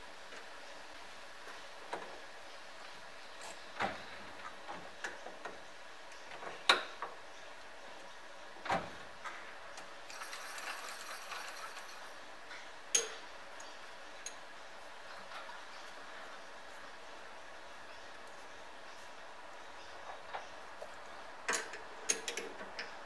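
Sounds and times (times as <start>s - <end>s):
metal clicks and knocks: 21.5s - 22.9s.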